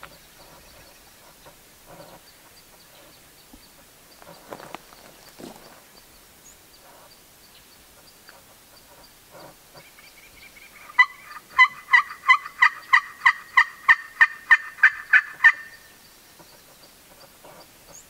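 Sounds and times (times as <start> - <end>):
turkey call yelps: 10.7 - 15.9.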